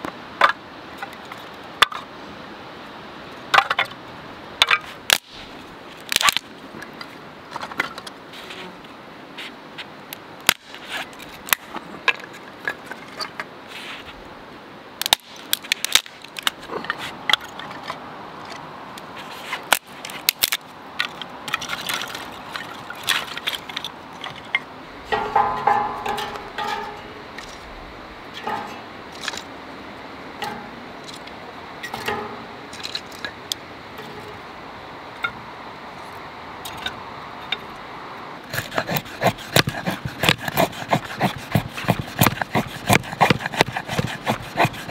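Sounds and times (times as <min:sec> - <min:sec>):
sticks cracking and snapping: 0:05.1 - 0:06.5, 0:10.5 - 0:11.7, 0:15.0 - 0:16.6, 0:19.6 - 0:24.4
sticks clattering down: 0:19.7 - 0:27.7, 0:28.3 - 0:29.5, 0:30.4 - 0:33.4
wood creaking: 0:21.0 - 0:29.5.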